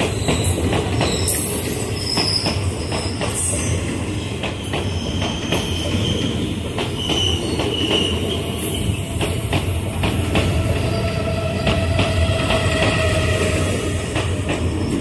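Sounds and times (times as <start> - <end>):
train rumble: 0.0 - 15.0
train wheels clattering over rails: 0.0 - 15.0
high wheel squeal: 10.5 - 14.0.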